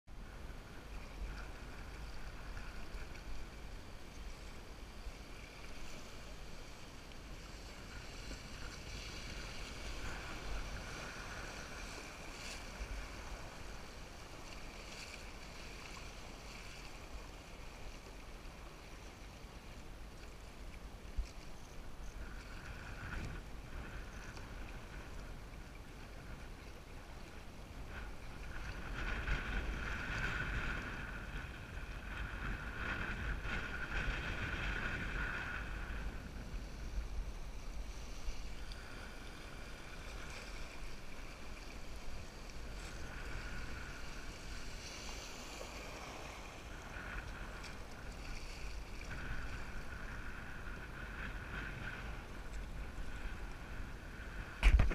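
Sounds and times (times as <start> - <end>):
wind rumbling on microphone: 0.1 - 54.9
river water rushing and splashing: 0.2 - 22.0, 36.9 - 50.0.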